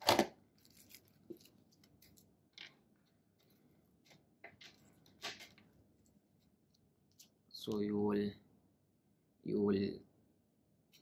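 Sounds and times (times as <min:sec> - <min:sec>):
plastic packaging rustling: 0:00.0 - 0:02.7.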